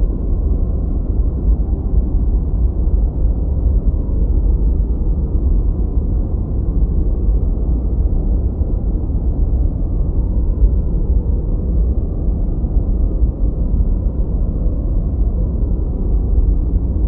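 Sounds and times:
low rumbling drone: 0:00.0 - 0:17.0.

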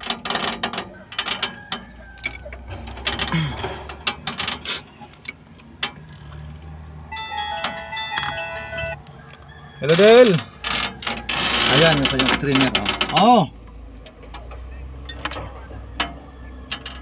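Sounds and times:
mobile phone ringtone: 0:07.1 - 0:09.0.

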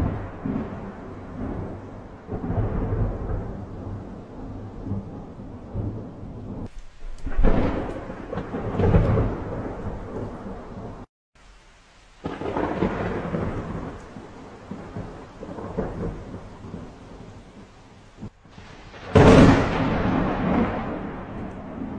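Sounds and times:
rolling thunder: 0:00.0 - 0:11.1, 0:12.2 - 0:21.9
rain hissing: 0:05.9 - 0:21.9.

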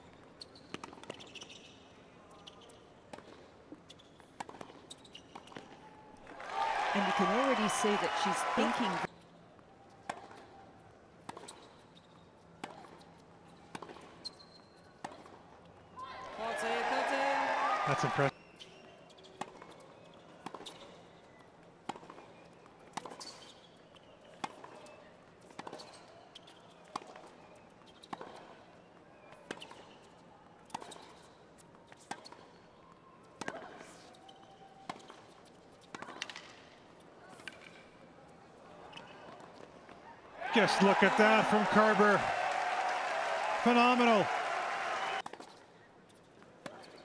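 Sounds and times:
tennis ball bouncing on court: 0:00.5 - 0:01.6, 0:02.5 - 0:05.8, 0:10.0 - 0:10.5, 0:11.2 - 0:11.8, 0:12.6 - 0:14.4, 0:15.0 - 0:15.4, 0:20.4 - 0:20.8, 0:22.8 - 0:23.4, 0:27.9 - 0:28.5, 0:30.7 - 0:32.5.

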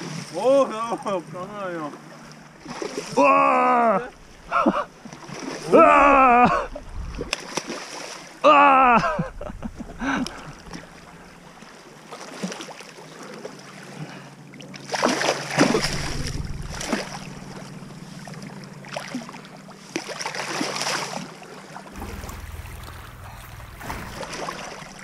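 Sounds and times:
sea water splashing over rocks: 0:01.9 - 0:03.3, 0:04.1 - 0:08.5, 0:09.8 - 0:25.0.

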